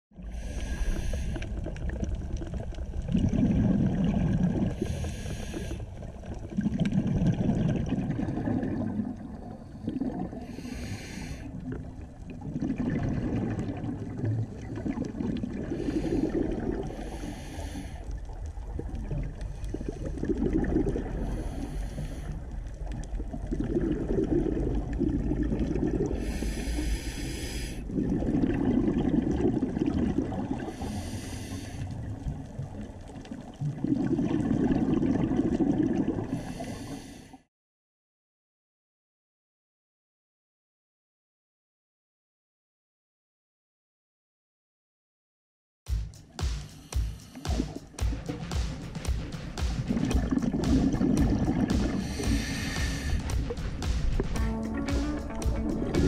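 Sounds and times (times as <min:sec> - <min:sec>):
regulator breathing underwater: 0:00.2 - 0:01.9, 0:03.2 - 0:06.1, 0:08.8 - 0:11.8, 0:15.5 - 0:18.4, 0:19.4 - 0:25.2, 0:25.8 - 0:29.4, 0:30.5 - 0:32.2, 0:36.2 - 0:37.5, 0:46.4 - 0:56.0
exhaust bubbles: 0:01.4 - 0:05.0, 0:06.1 - 0:17.5, 0:18.1 - 0:26.8, 0:27.8 - 0:31.2, 0:32.0 - 0:36.6, 0:47.0 - 0:56.0.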